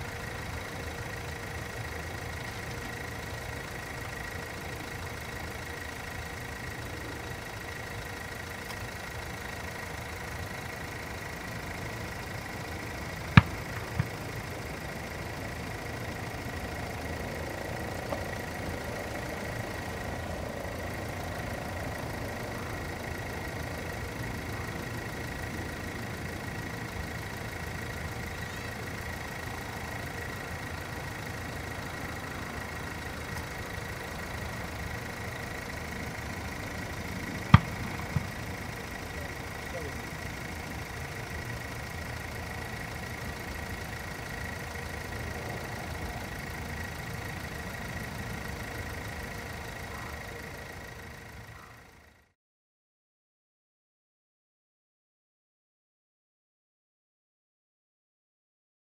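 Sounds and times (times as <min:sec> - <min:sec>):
distant jet engine noise: 0:30.9 - 0:40.9.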